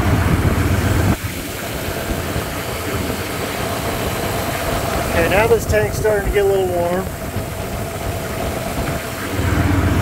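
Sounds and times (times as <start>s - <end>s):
car engine idling: 0.0s - 10.0s
heavy low engine rumble: 0.0s - 10.0s.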